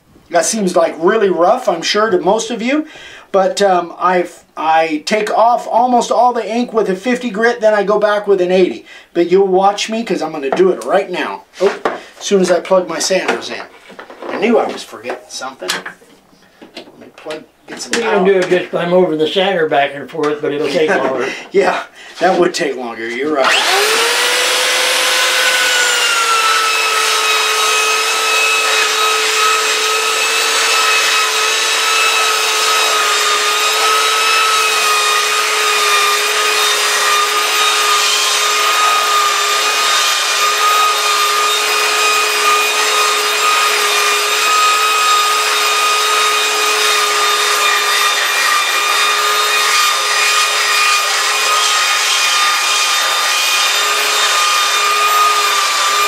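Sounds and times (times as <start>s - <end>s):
belt sander whining: 23.0s - 56.0s
sanding belt rasping on wood: 23.5s - 56.0s.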